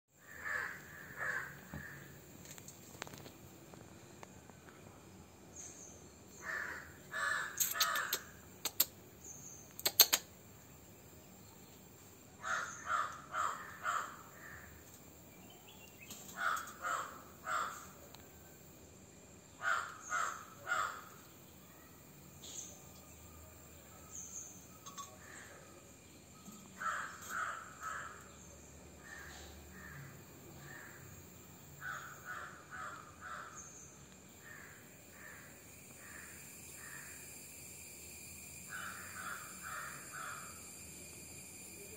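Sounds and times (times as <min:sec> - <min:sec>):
sharp clicks: 0:07.6 - 0:09.0, 0:09.7 - 0:10.3.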